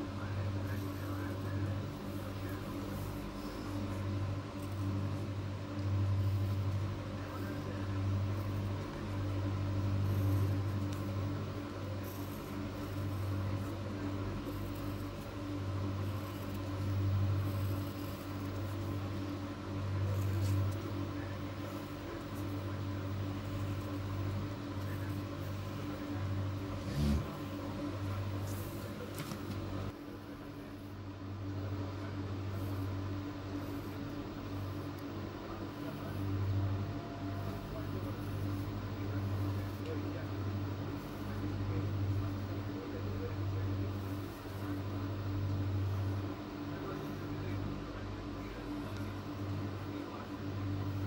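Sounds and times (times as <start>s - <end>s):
low motor hum: 0.0s - 30.0s.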